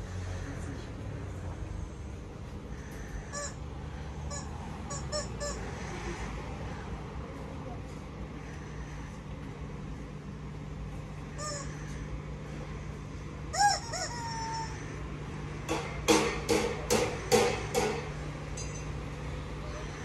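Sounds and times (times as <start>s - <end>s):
steady low hum: 0.0s - 20.0s
loud chicken calls: 2.9s - 3.6s, 11.4s - 12.1s, 13.5s - 15.1s.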